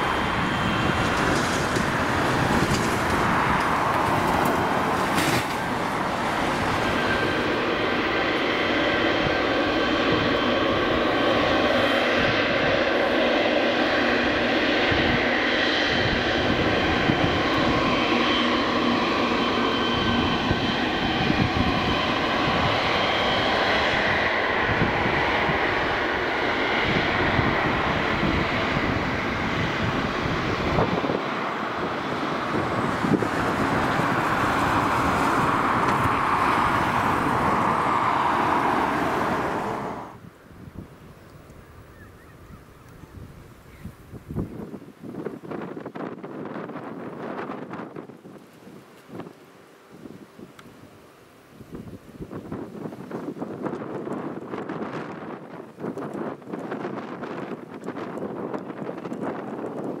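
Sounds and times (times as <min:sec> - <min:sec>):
rushing jet exhaust: 0:00.0 - 0:40.3
jet engine whine: 0:00.0 - 1:00.0.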